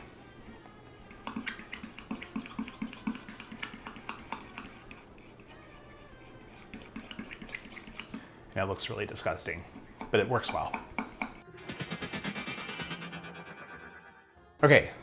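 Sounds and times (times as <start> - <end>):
whisk clinking against metal bowl: 1.1 - 5.6, 6.5 - 8.2, 9.3 - 11.4.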